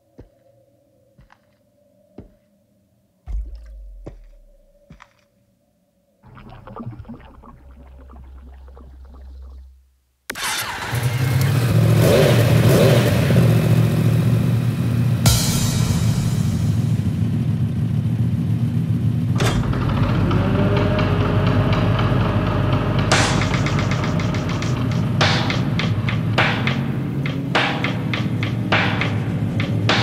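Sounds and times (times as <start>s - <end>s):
motorcycle engine running: 3.3s - 5.0s, 11.1s - 28.6s
oil pouring through funnel: 6.3s - 9.8s.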